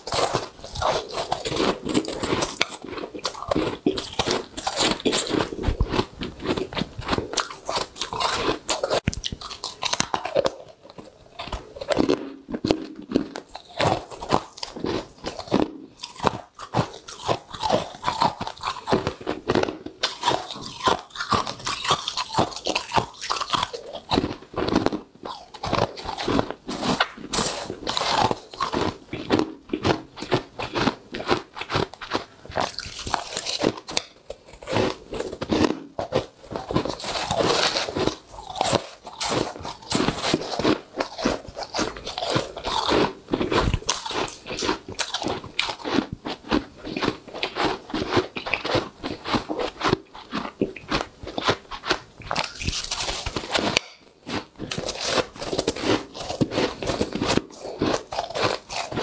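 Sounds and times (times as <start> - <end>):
frost being chewed: 0.0 - 59.0.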